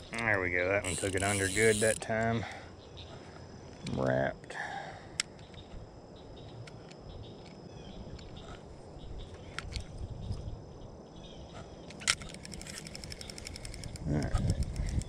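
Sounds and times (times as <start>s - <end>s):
insects droning: 0.0s - 15.0s
thin held tones: 0.8s - 2.0s.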